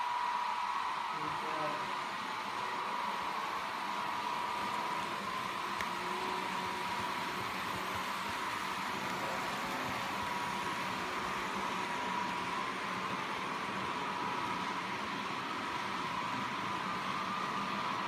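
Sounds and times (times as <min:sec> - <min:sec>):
electric motors whining: 0:00.0 - 0:18.0
model train wheels rolling on track: 0:00.0 - 0:18.0.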